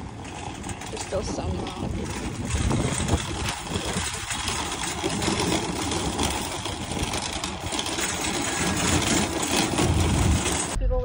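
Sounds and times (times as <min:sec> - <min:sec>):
shopping cart rattling on asphalt: 0:00.0 - 0:10.8.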